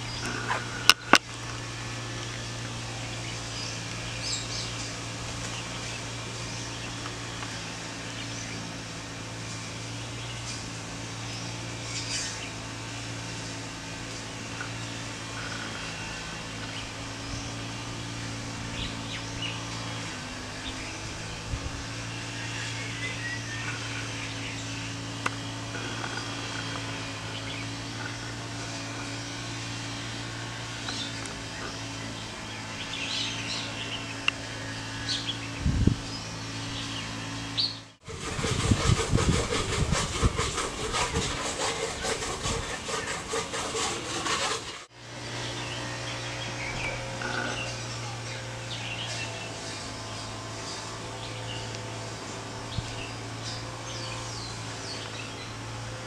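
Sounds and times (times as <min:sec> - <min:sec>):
rough rasping noise: 0:00.0 - 0:45.0, 0:45.6 - 0:56.0
steady low hum: 0:00.0 - 0:56.0.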